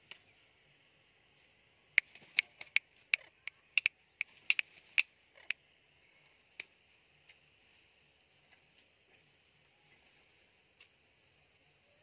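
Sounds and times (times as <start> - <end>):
steady high hiss: 0.0 - 12.0
parakeets clicking: 2.0 - 5.6.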